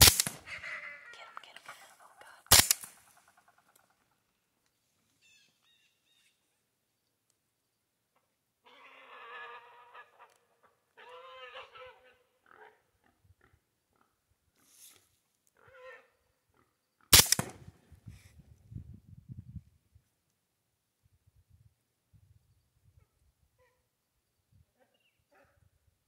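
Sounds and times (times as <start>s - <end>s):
wild hog squealing: 8.6s - 10.4s, 11.0s - 12.8s, 15.6s - 16.1s.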